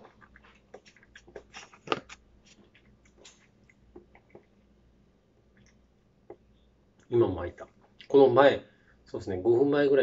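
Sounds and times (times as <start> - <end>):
person chewing food: 0.0 - 4.8.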